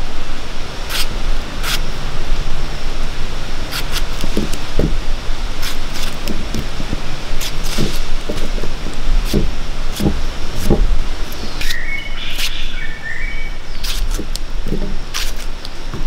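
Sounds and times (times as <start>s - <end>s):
loud steady rushing noise: 0.0s - 16.0s
knife cutting tomato: 0.9s - 1.8s, 3.7s - 5.0s, 5.6s - 6.7s, 9.2s - 12.6s, 13.8s - 15.5s.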